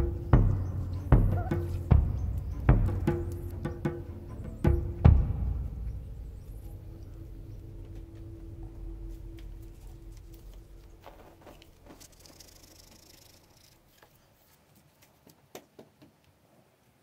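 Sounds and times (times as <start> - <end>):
low rumble: 0.0 - 12.0.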